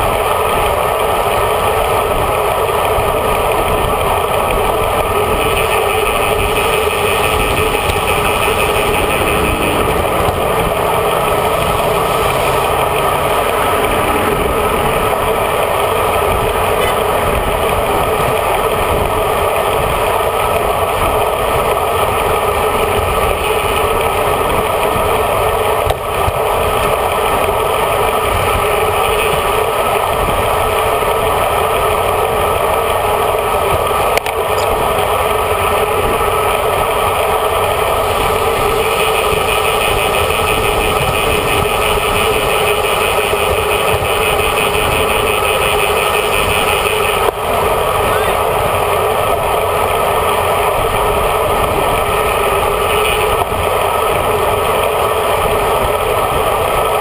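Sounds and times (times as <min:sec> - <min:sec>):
tyre noise on road: 0:00.0 - 0:57.0
wind rush: 0:01.4 - 0:28.7.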